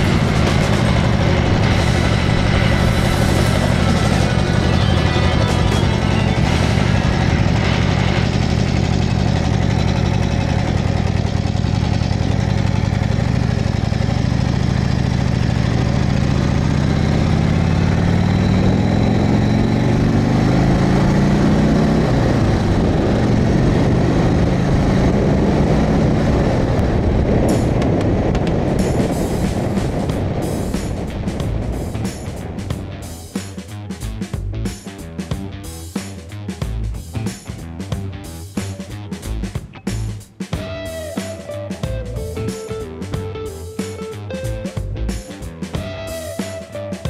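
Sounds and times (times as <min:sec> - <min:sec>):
wind rush: 0:00.0 - 0:09.0, 0:22.0 - 0:33.4
motorcycle engine running: 0:00.0 - 0:47.0.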